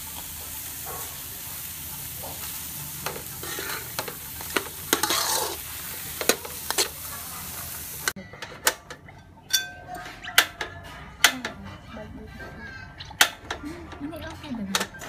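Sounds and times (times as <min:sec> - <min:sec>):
fried rice sizzling in a wok: 0:00.0 - 0:08.2
metal spatula scraping a wok: 0:02.2 - 0:08.7.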